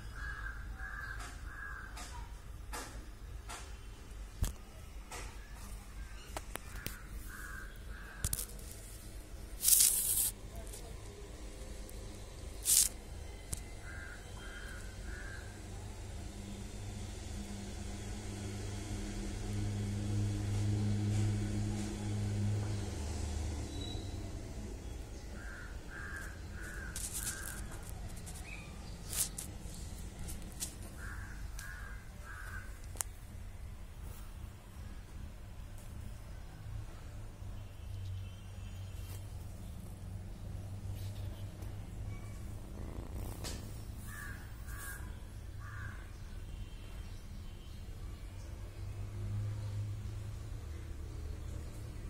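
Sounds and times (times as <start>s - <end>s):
crows cawing: 0.1s - 2.2s, 6.7s - 8.5s, 13.8s - 15.7s, 25.4s - 27.9s, 30.8s - 32.8s, 44.0s - 46.2s.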